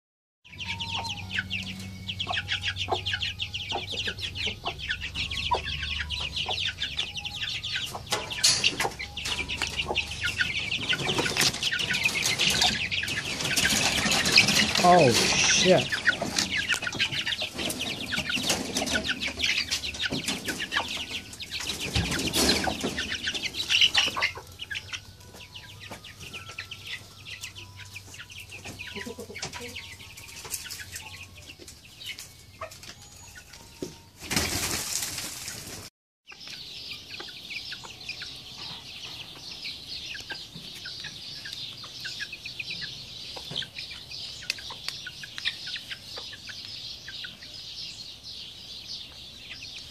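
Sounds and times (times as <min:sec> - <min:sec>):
hen clucking: 0:00.5 - 0:34.0
chicks peeping: 0:00.5 - 0:49.9
wing flapping and scuffling: 0:09.2 - 0:24.0, 0:34.2 - 0:35.9.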